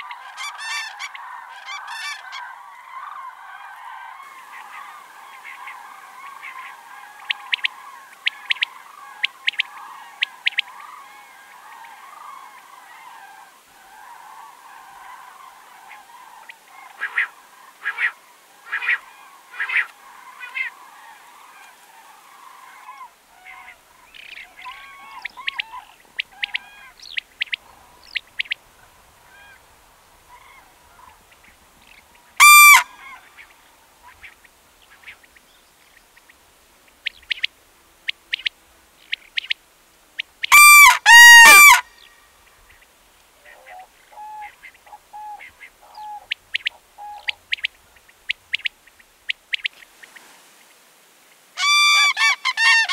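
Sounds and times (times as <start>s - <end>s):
cranes trumpeting calls: 0.0s - 29.7s, 32.4s - 34.3s, 40.4s - 42.2s, 51.6s - 52.9s.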